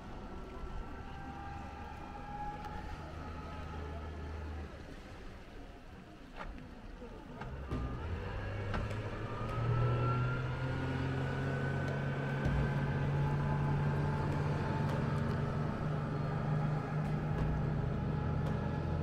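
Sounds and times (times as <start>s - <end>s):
motorboat engine speeding up: 0.0s - 5.0s, 7.4s - 19.0s
faint whine rising in pitch: 7.9s - 19.0s.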